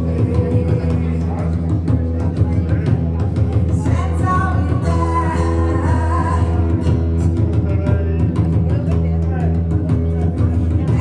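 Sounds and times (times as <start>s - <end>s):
woman singing: 0.0s - 1.7s, 3.6s - 7.0s
strummed acoustic guitar: 0.0s - 11.0s.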